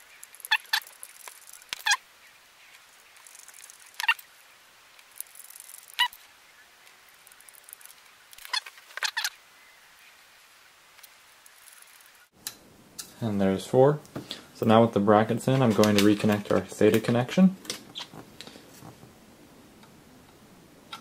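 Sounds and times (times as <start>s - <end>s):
screwdriver squeaking and clicking: 0.1s - 2.0s, 3.2s - 4.3s, 5.0s - 6.2s, 7.2s - 9.4s, 17.8s - 18.2s.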